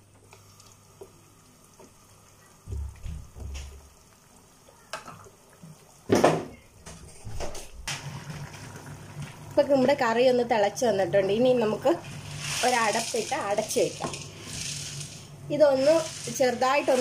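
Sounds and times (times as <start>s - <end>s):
bubbling pops in pot: 2.6s - 6.6s.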